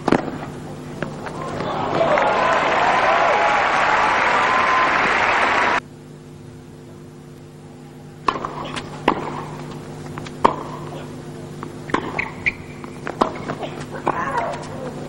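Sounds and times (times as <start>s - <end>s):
rackets striking tennis ball: 0.0s - 2.1s, 8.2s - 15.0s
steady low hum: 0.0s - 15.0s
crowd applause: 1.2s - 5.8s
ball bouncing: 8.3s - 10.9s, 11.6s - 14.8s.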